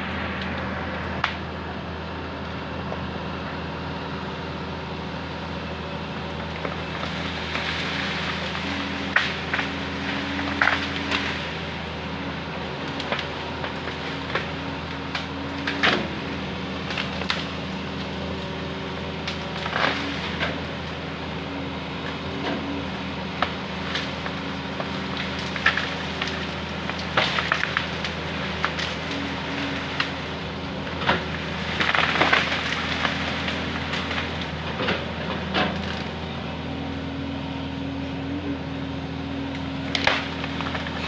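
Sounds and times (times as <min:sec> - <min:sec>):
excavator diesel engine running: 0:00.0 - 0:41.0
branches cracking and snapping: 0:06.3 - 0:21.3, 0:22.0 - 0:36.3, 0:39.4 - 0:41.0.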